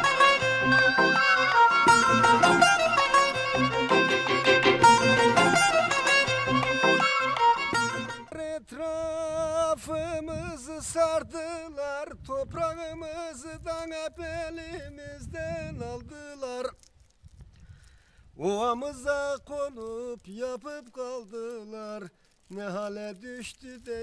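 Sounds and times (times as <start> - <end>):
wavering melodic line with vibrato: 0.0 - 8.2
string ensemble led by violin: 0.0 - 8.3.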